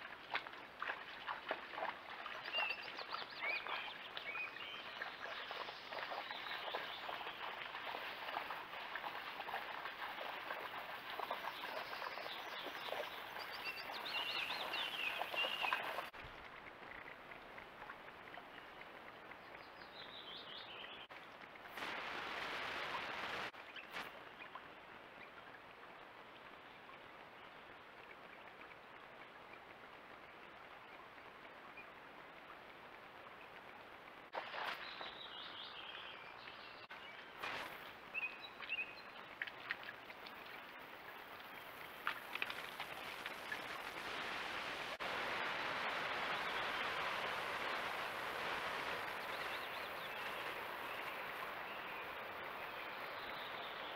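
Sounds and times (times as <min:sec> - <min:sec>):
faint steady hiss: 0:00.0 - 0:53.9
small birds singing: 0:11.2 - 0:16.1.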